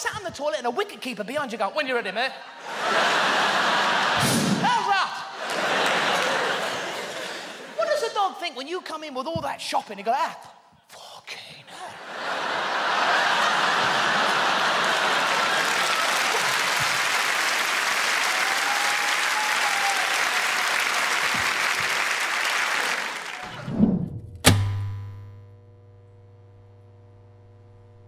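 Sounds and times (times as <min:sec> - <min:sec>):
audience applauding: 0:05.4 - 0:07.8, 0:12.1 - 0:23.7
sharp hit: 0:23.9 - 0:25.2
low hum with held tones: 0:24.6 - 0:28.0.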